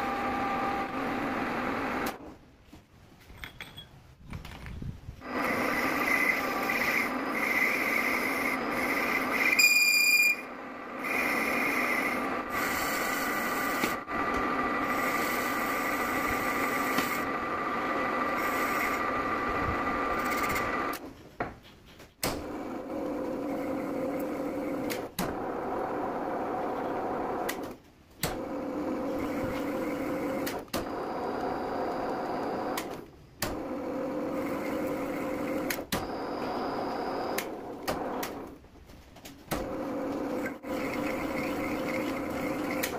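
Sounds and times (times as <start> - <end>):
metal lathe whine: 0.0 - 2.1, 5.2 - 21.0, 33.6 - 38.2, 39.8 - 42.9
high squeal: 5.5 - 13.1.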